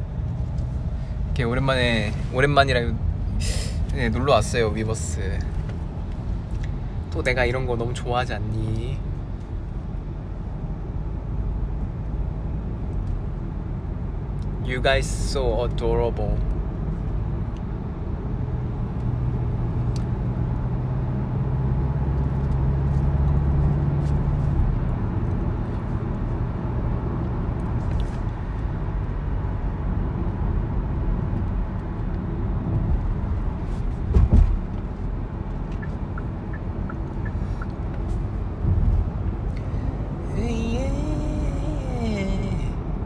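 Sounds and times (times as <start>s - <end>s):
car road and engine rumble: 0.0s - 43.0s
short thump: 34.0s - 34.6s.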